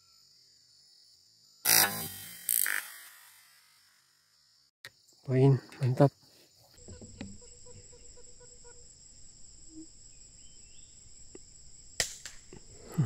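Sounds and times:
insects buzzing: 0.0s - 13.0s
air rifle shot: 12.0s - 12.5s.

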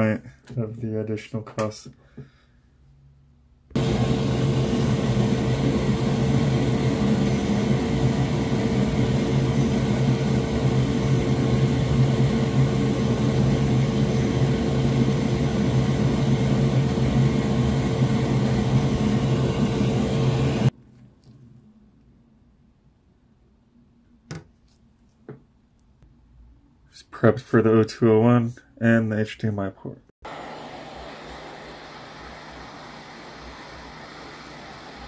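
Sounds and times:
electric blower fan whirring: 3.7s - 20.7s, 30.2s - 35.0s.

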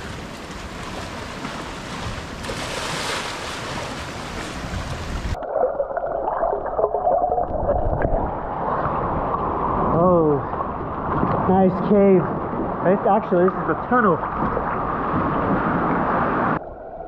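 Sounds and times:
wind on microphone: 0.0s - 5.4s, 7.3s - 12.9s
water sloshing and splashing: 0.0s - 11.5s, 12.3s - 16.3s
underwater gurgling and bubbling: 5.2s - 9.9s.

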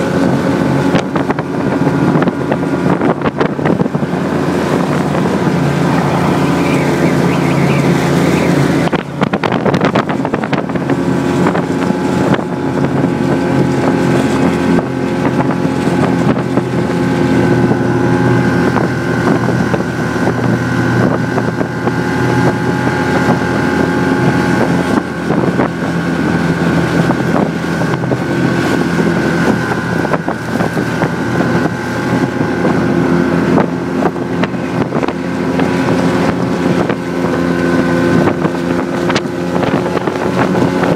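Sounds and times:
snowmobile engine running: 0.0s - 40.9s.

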